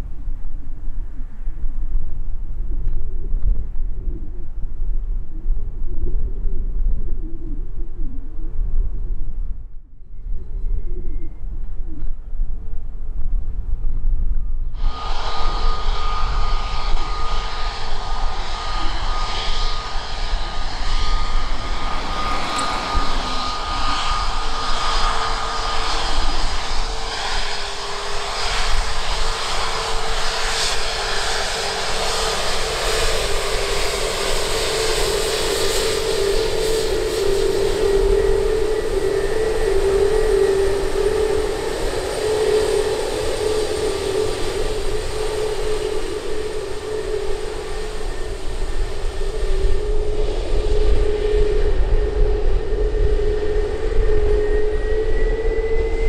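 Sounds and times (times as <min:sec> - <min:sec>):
jet engines whining: 0:14.8 - 0:56.0.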